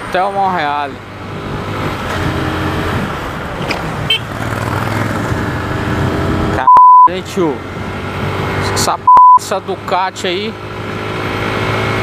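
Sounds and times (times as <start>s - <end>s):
road and wind noise: 0.0s - 12.0s
loud bleep tone: 6.6s - 7.1s, 9.1s - 9.4s.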